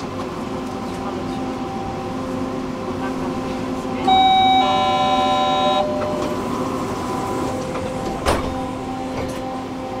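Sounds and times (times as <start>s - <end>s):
tram electrical hum and whine: 0.0s - 10.0s
electronic signal tone: 4.0s - 6.6s.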